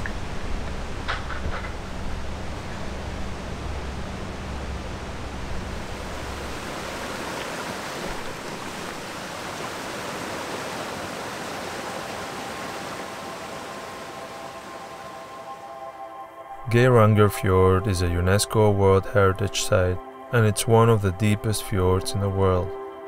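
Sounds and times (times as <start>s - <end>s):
low rumble: 0.0s - 7.2s
stream running over rocks: 5.7s - 15.7s.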